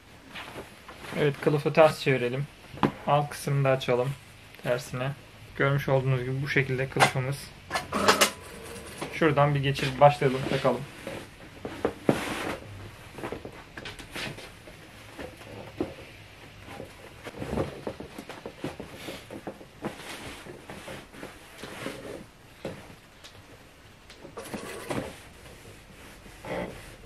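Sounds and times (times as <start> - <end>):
fabric rustling and brushing: 0.1 - 1.6, 8.6 - 23.2, 24.4 - 27.0.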